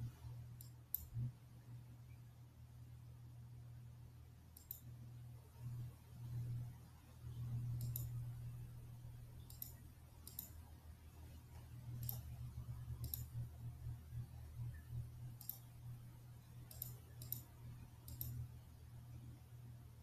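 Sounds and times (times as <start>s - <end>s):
low steady hum: 0.0s - 20.0s
faint mouse clicks: 0.6s - 1.3s, 4.6s - 4.9s, 7.3s - 8.2s, 9.4s - 10.6s, 11.4s - 12.4s, 13.0s - 13.5s, 14.6s - 15.8s, 16.6s - 18.5s.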